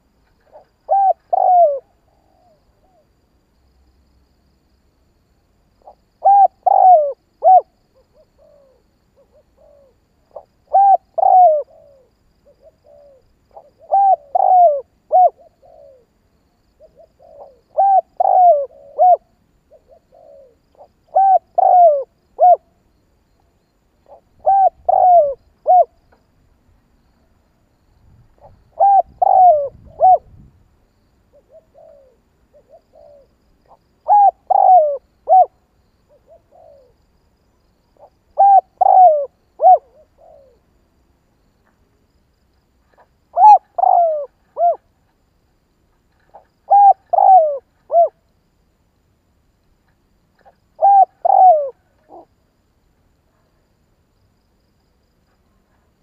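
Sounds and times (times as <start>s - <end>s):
dove cooing: 0.4s - 3.0s, 5.8s - 16.2s, 16.8s - 22.8s, 24.0s - 26.0s, 28.4s - 30.4s, 31.3s - 37.0s, 38.0s - 40.7s, 42.9s - 45.0s, 46.2s - 48.2s, 50.4s - 52.4s.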